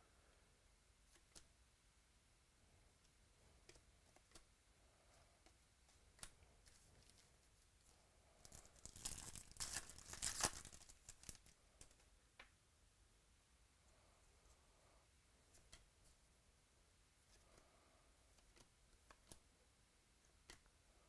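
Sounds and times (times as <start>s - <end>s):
wrapper tearing and crinkling: 8.4s - 11.5s.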